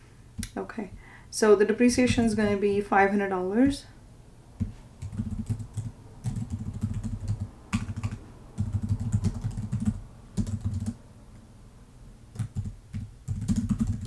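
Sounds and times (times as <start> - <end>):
typing on a computer keyboard: 4.6 - 11.0, 12.3 - 14.0.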